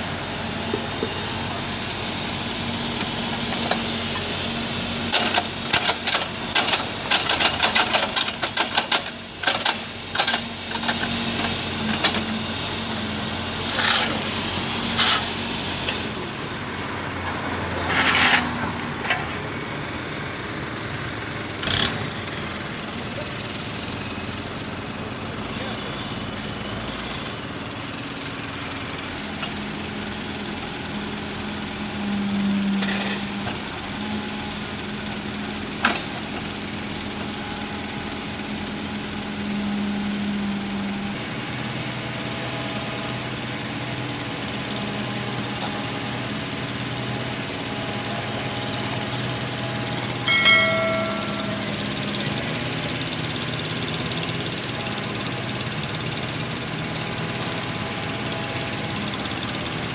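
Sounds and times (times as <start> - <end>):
heavy machinery engine running: 0.0 - 59.9
short high tone: 50.2 - 52.3.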